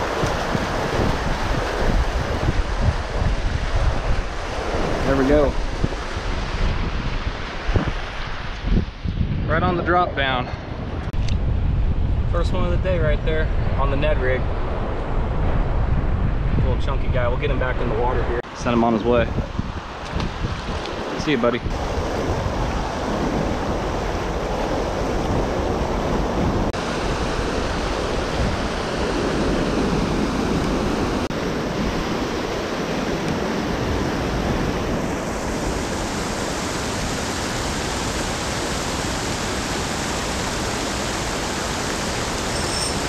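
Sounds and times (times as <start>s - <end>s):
water rushing over rock ledge: 0.0s - 6.8s, 20.4s - 43.0s.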